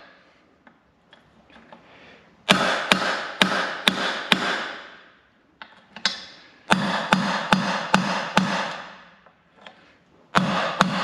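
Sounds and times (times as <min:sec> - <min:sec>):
hammer striking metal punch: 0:02.5 - 0:05.0, 0:06.0 - 0:09.1, 0:10.4 - 0:11.0.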